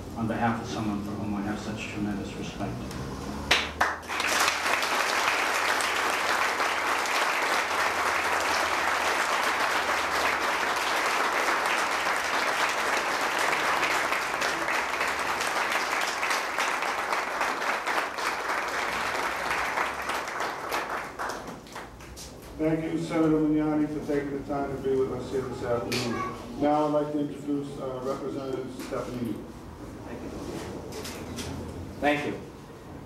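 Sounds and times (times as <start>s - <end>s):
audience applauding: 3.4s - 22.2s.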